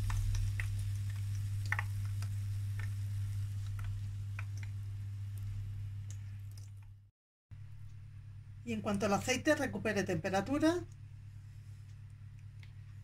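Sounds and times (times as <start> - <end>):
hot oil crackling and popping: 0.0 - 7.0
steady low hum: 0.0 - 13.0.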